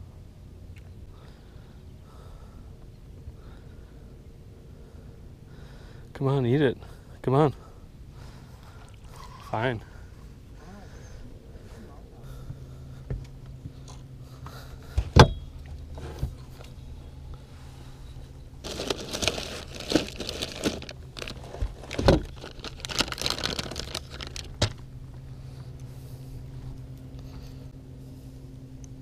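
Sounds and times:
low steady hum: 0.0s - 29.0s
plastic bags rustling: 18.6s - 24.9s.

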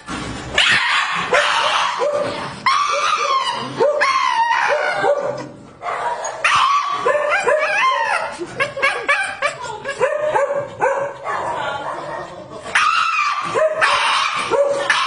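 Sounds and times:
dog high-pitched crying: 2.6s - 5.2s, 6.2s - 10.0s.

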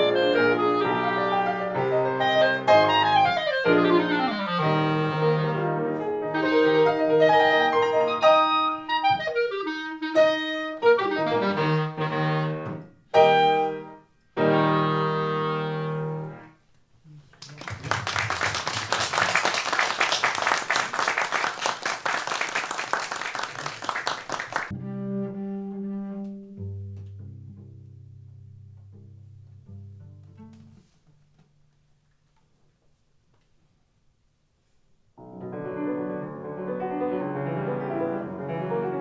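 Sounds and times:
clarinet and piano duo: 0.0s - 16.6s, 24.7s - 27.8s, 35.2s - 39.0s
audience applauding: 17.2s - 24.7s.

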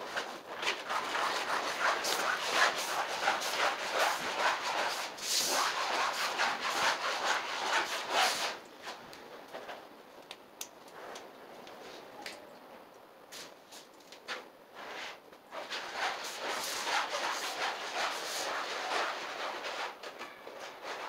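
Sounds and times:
rubbing on vinyl flooring: 0.0s - 9.0s, 13.4s - 21.0s.

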